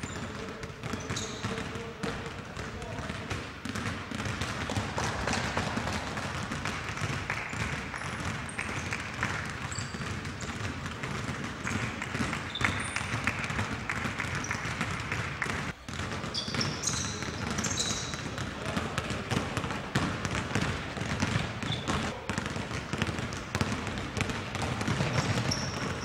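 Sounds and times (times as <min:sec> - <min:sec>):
sneaker squeaks: 0:00.0 - 0:01.9, 0:07.3 - 0:19.0, 0:20.0 - 0:26.0
basketballs bouncing on gym floor: 0:00.0 - 0:26.0.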